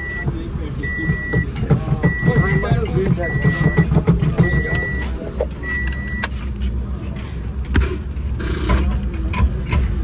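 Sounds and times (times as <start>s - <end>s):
reverse warning buzzer beeping: 0.8s - 6.3s.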